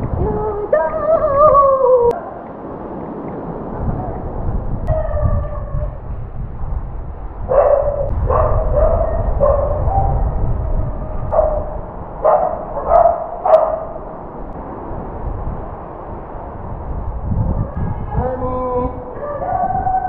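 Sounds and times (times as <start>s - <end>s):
low rumble: 3.6s - 20.0s
dog whining barks: 11.3s - 14.0s.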